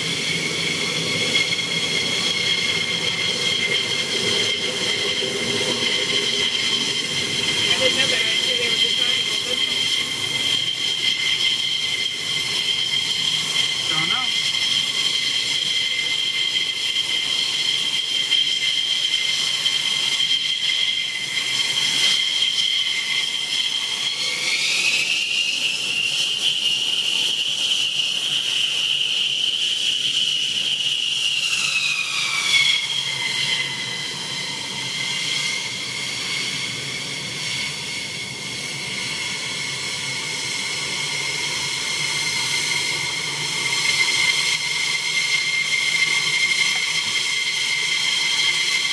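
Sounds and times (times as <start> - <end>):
jet engines whining: 0.0 - 48.9.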